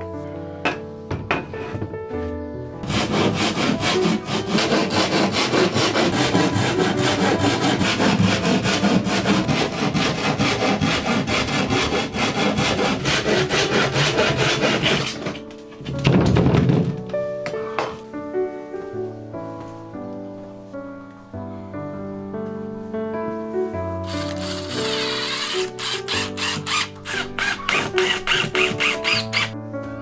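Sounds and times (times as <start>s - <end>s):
hand saw cutting board: 2.8s - 15.4s, 24.0s - 29.6s.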